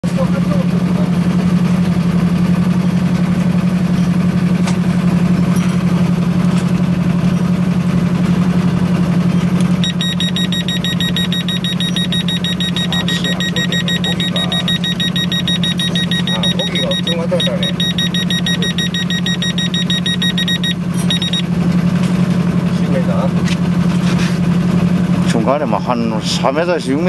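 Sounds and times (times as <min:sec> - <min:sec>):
high-pitched rapid alarm beeping: 0:09.8 - 0:21.4.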